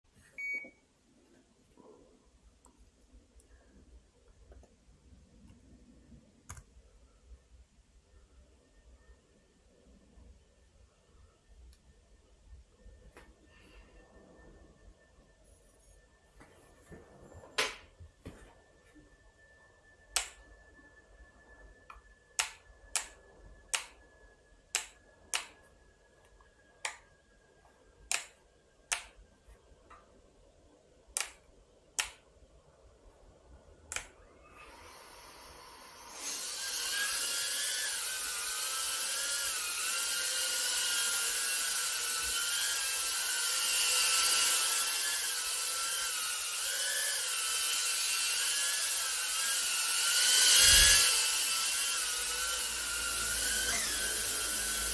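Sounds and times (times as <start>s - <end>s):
sharp clicks: 20.1s - 20.4s, 24.7s - 25.6s, 28.1s - 29.2s, 31.2s - 31.4s, 32.0s - 32.2s
drone propellers whining: 34.2s - 54.9s.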